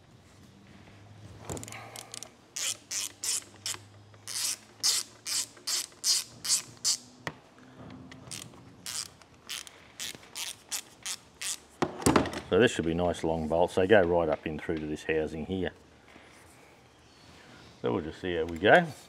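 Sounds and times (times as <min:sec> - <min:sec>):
socket ratchet clicking: 0:01.6 - 0:07.1, 0:08.3 - 0:11.6.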